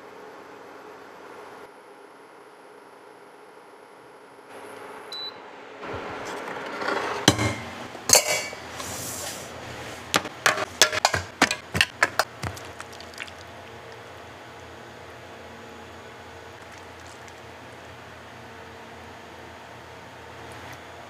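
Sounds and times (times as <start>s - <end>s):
fruit clinking into aluminium molds: 10.2s - 12.7s.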